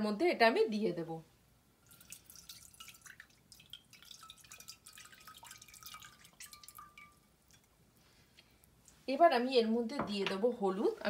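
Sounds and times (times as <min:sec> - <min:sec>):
water dripping into saucepan: 0:01.8 - 0:07.8.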